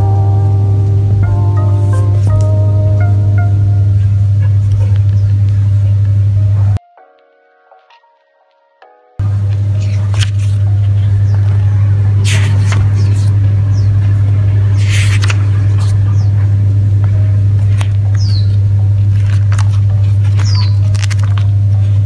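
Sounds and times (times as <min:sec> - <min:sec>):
steady low hum: 0:00.0 - 0:06.8, 0:09.2 - 0:22.0
paper pages rustling: 0:09.5 - 0:11.6, 0:12.2 - 0:13.4, 0:14.0 - 0:16.2, 0:17.6 - 0:22.0.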